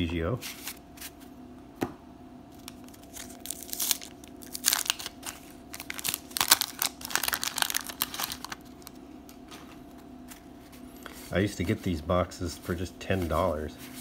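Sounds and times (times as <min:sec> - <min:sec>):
wax paper wrapper tearing: 0:02.6 - 0:09.0.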